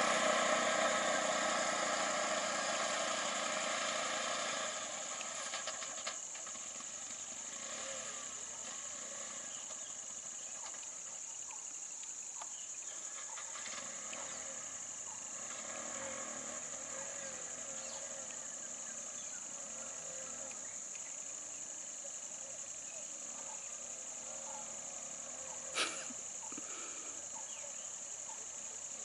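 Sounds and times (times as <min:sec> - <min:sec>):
steady high hiss: 0:00.0 - 0:29.0
vehicle engines idling: 0:00.0 - 0:29.0
birds calling: 0:08.6 - 0:15.6, 0:22.4 - 0:28.6.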